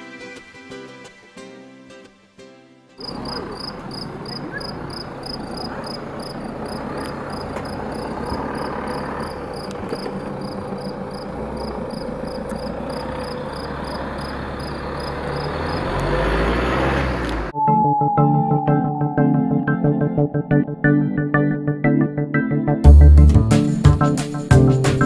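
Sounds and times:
cricket chirping: 0:03.0 - 0:16.4
low vehicle engine rumble: 0:03.0 - 0:17.6
outdoor hum: 0:03.0 - 0:20.4.

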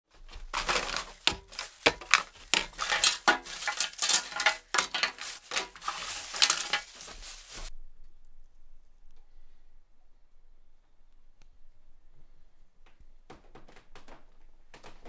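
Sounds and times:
plastic bag rustling and crinkling: 0:00.1 - 0:07.7.

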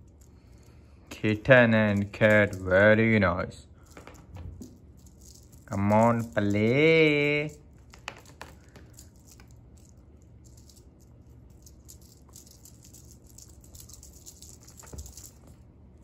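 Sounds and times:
cat toy rustling and ticking: 0:03.8 - 0:15.7.

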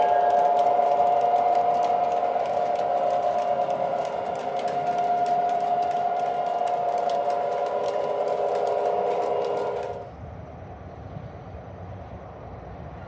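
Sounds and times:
wheels clicking over rail joints: 0:00.0 - 0:10.1
model train wheels and motor hum: 0:00.0 - 0:13.0.

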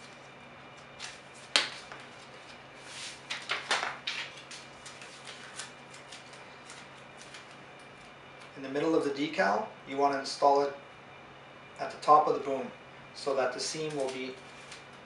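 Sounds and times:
vinyl decal backing crackling: 0:00.9 - 0:08.5.

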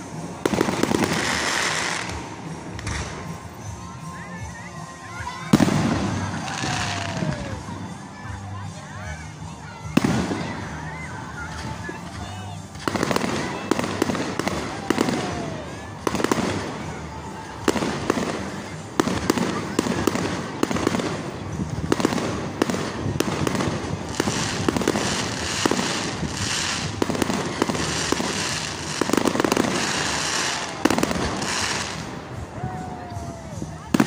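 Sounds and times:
crackling hiss: 0:00.0 - 0:03.6, 0:09.9 - 0:33.5
fireworks bursting with sharp bangs: 0:00.0 - 0:04.1, 0:04.8 - 0:08.7, 0:09.6 - 0:34.0.

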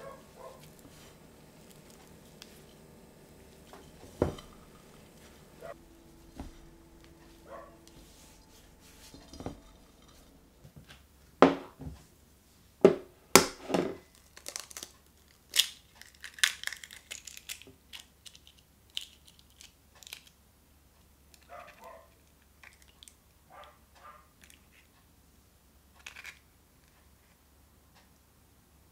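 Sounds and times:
eggshell crunching and crackling: 0:13.4 - 0:20.4.

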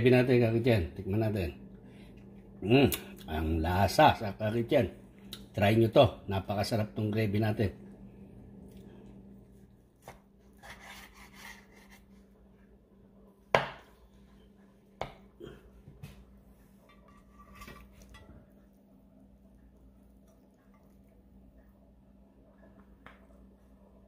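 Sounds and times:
knife scraping cutting board: 0:10.0 - 0:12.3, 0:17.0 - 0:18.2
knife slicing meat: 0:10.0 - 0:12.3.

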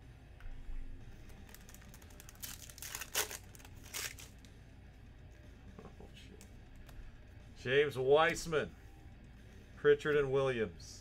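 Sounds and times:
plastic wrapper crinkling and tearing: 0:01.3 - 0:04.5.

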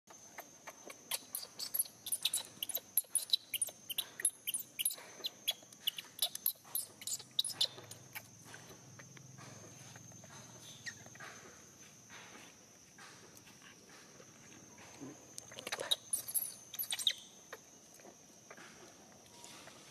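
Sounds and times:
baby monkey squealing: 0:00.6 - 0:08.3, 0:15.5 - 0:17.2.

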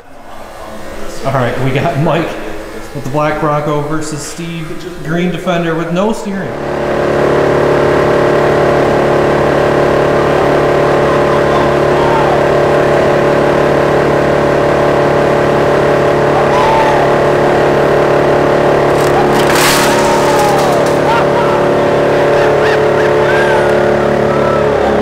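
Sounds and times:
wood chipper running: 0:01.6 - 0:25.0
clatter: 0:18.8 - 0:22.2.

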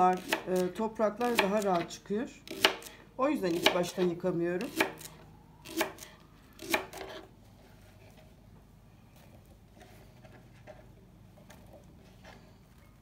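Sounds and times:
knife chopping on plastic board: 0:00.1 - 0:01.9, 0:02.5 - 0:02.9, 0:03.5 - 0:04.0, 0:04.6 - 0:05.1.

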